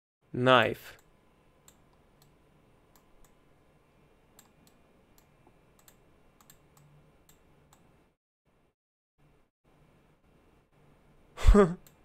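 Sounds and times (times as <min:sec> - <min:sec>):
faint computer mouse clicks: 0:04.4 - 0:07.9.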